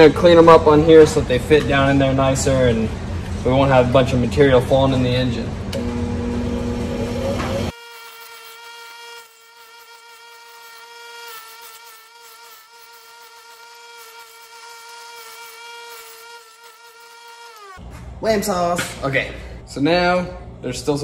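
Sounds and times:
bench grinder motor whining: 5.7 - 17.9
steel grinding on wheel: 7.7 - 17.9.

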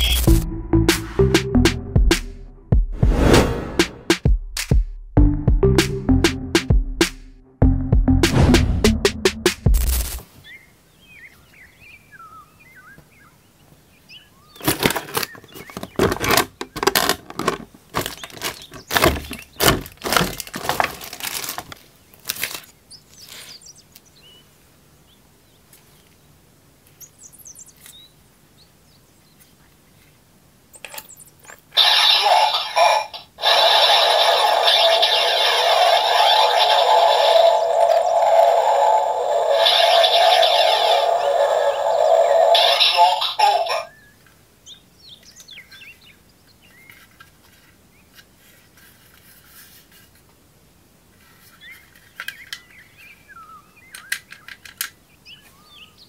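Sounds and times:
plastic toy parts clicking: 51.9 - 52.8, 53.9 - 55.0.

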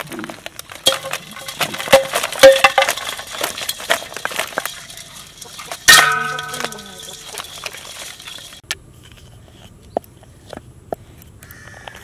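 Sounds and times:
shells clattering into metal bowl: 0.6 - 8.6
metal bowl knocked and ringing: 0.9 - 8.0.

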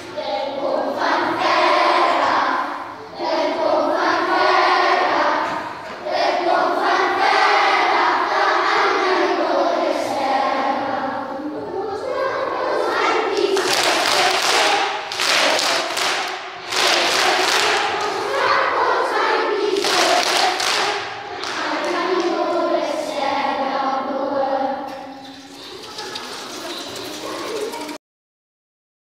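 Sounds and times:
children shouting: 0.0 - 28.0
children singing in chorus: 0.0 - 28.0.

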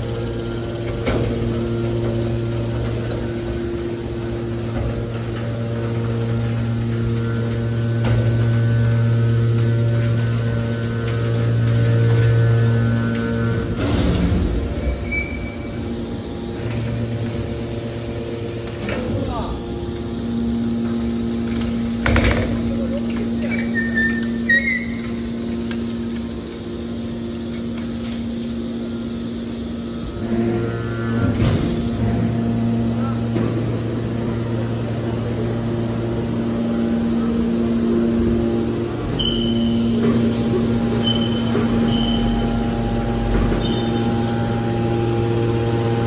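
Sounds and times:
hydraulic baler humming: 0.0 - 46.0
high metallic squeaks: 14.8 - 15.8, 23.4 - 25.4, 39.1 - 40.0, 40.9 - 42.7, 43.6 - 44.2.

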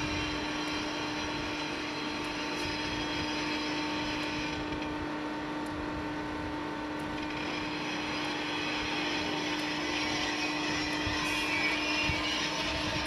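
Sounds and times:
snow-clearing train roaring: 7.3 - 13.0.

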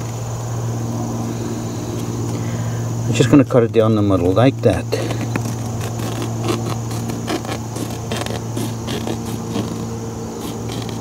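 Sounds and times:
steady low hum: 0.0 - 11.0
scissors snipping fabric: 5.1 - 11.0.

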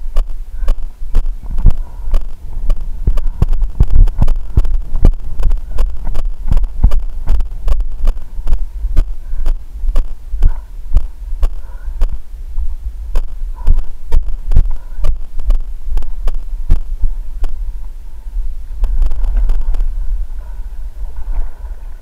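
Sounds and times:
steady low rumble: 0.0 - 22.0
footfalls thumping camera: 0.1 - 12.2.

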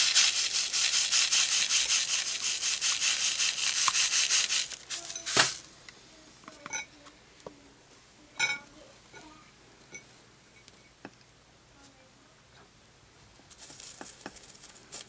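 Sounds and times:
salt crystals rattling onto spoon: 0.0 - 5.6.

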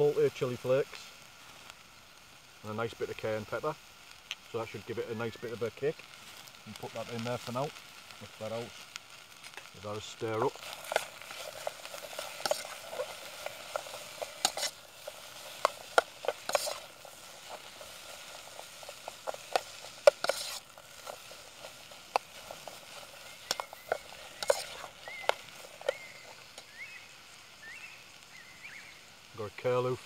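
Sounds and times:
meat sizzling: 0.0 - 30.0
spoon scraping metal pot: 10.5 - 26.4.

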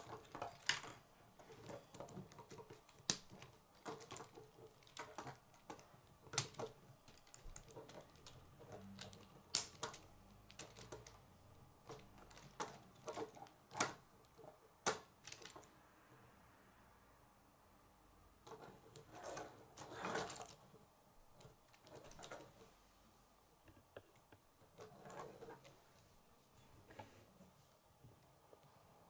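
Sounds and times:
plastic pieces clicking and snapping: 0.0 - 15.7.

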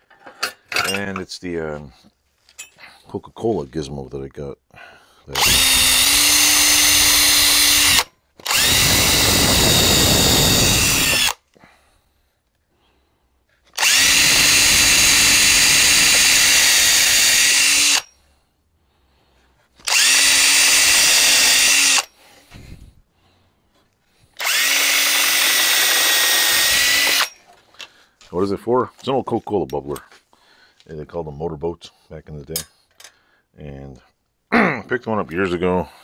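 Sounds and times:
cordless drill drilling into wood: 5.4 - 11.4, 13.7 - 18.1, 19.8 - 22.2, 24.4 - 27.4.

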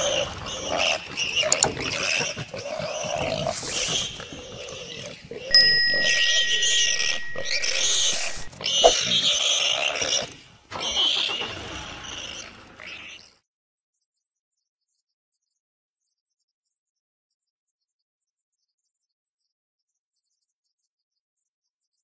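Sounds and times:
lions growling and snarling: 0.0 - 5.4, 8.8 - 13.3
sharp high ringing tone: 5.5 - 8.5.

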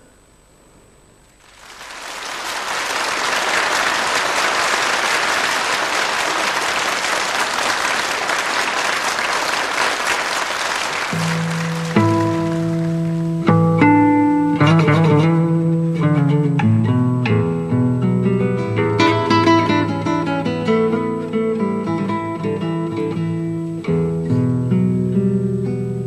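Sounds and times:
audience applause: 1.4 - 13.5
low sustained guitar notes: 11.1 - 26.0.

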